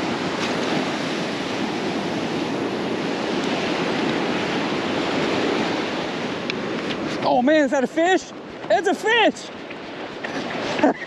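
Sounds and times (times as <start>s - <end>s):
wind on microphone: 0.0s - 7.4s
surf breaking on beach: 0.0s - 11.0s.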